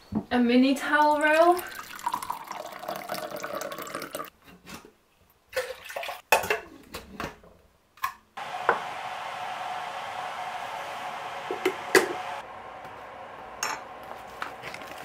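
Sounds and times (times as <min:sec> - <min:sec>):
water running into a glass: 0:01.4 - 0:04.3
steady hiss: 0:08.4 - 0:15.0.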